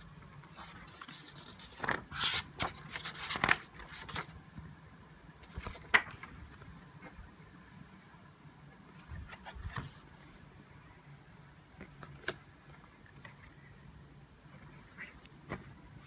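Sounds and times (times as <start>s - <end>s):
faint low hum: 0.0s - 16.0s
paper pages rustling: 0.4s - 4.4s, 5.4s - 7.2s, 8.9s - 10.4s, 11.8s - 13.8s, 14.5s - 16.0s.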